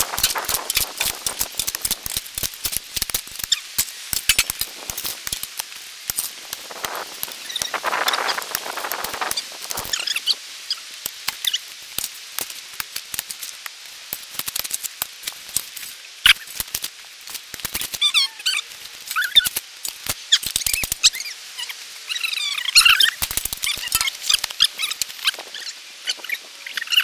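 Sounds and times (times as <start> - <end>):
shovels scraping into dirt: 0.0 - 10.0
high squeaky chirps: 7.4 - 10.8, 18.0 - 19.5, 20.3 - 27.0.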